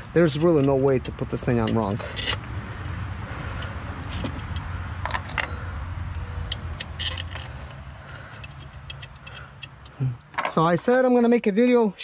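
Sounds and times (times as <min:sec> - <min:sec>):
clicks and knocks of car parts: 0:03.6 - 0:10.6.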